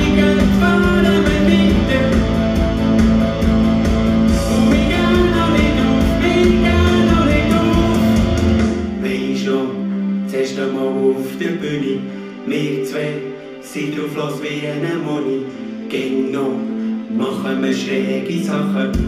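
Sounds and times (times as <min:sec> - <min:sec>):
men singing: 0:00.0 - 0:02.7, 0:04.3 - 0:19.0
steady drum beat: 0:00.0 - 0:09.0
guitar: 0:00.0 - 0:09.2
bass: 0:00.0 - 0:12.3, 0:15.9 - 0:19.0.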